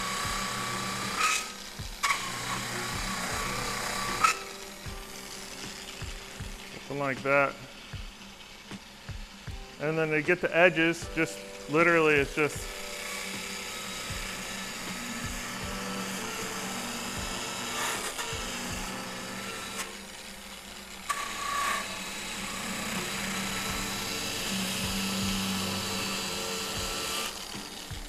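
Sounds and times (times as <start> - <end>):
sanding motor whine: 0.0 - 28.0
wood rubbing on sanding wheel: 0.0 - 28.0.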